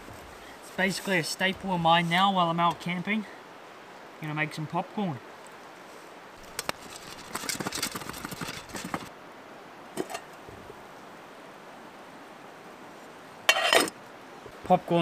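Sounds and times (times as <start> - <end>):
metal pot lid clinking: 13.5 - 13.9.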